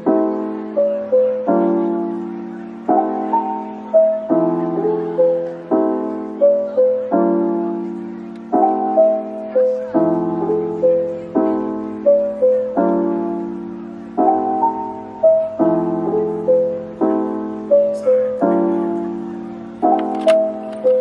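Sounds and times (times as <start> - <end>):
soft slow piano music: 0.0 - 21.0.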